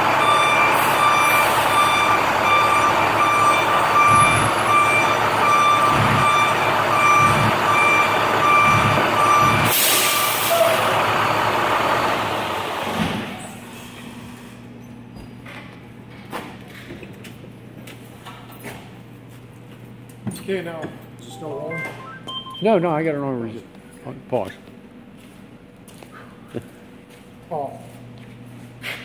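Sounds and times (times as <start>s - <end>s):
bus engine running: 0.0s - 14.8s
backup alarm beeping: 0.2s - 9.8s, 21.3s - 22.9s.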